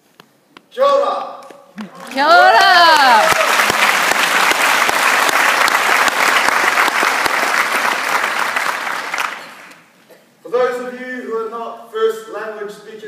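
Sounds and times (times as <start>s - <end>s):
audience applauding: 1.8s - 9.9s.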